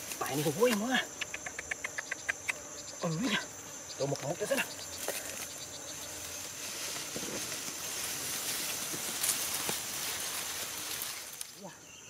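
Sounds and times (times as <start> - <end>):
rice stalks rustling: 5.0 - 11.6.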